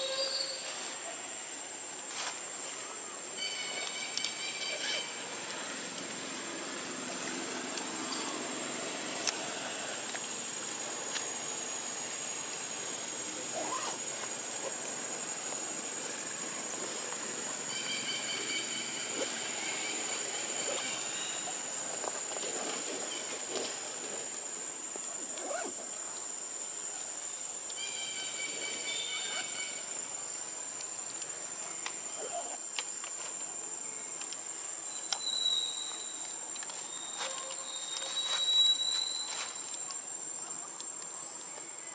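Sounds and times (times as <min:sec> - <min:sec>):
high-pitched insect drone: 0:02.7 - 0:40.7.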